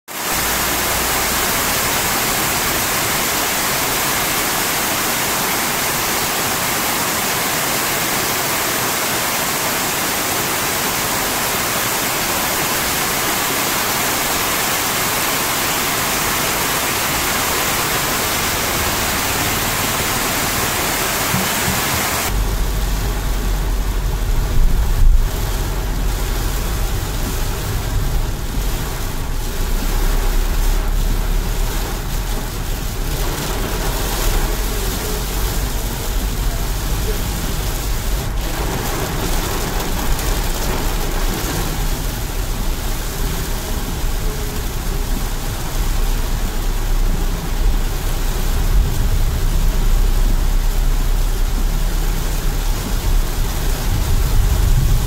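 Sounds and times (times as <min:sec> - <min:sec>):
heavy rain falling: 0:00.1 - 0:55.0
rain on windscreen: 0:00.1 - 0:55.0
car interior rumble: 0:16.1 - 0:55.0.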